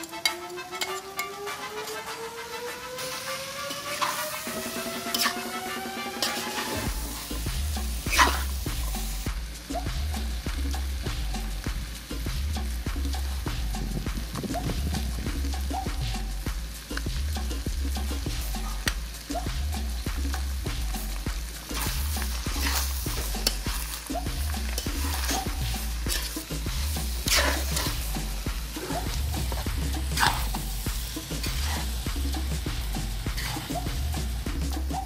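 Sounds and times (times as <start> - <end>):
food sizzling in a pan: 0.0 - 35.0
spatula scraping a wok: 3.2 - 9.3, 21.4 - 34.4.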